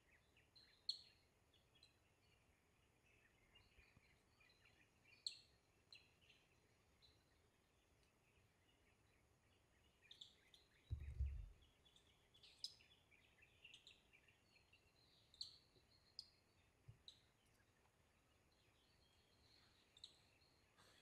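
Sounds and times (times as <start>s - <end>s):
faint bird chirps: 0.0s - 21.0s
low bump: 10.9s - 11.6s.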